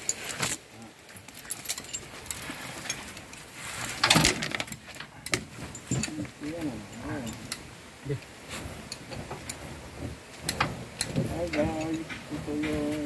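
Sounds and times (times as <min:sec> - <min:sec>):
steel tyre chains clanking: 0:00.0 - 0:07.7.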